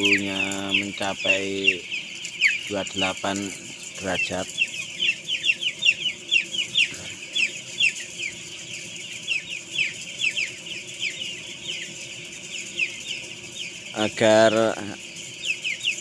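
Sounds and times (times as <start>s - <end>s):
chicks peeping: 0.0s - 16.0s.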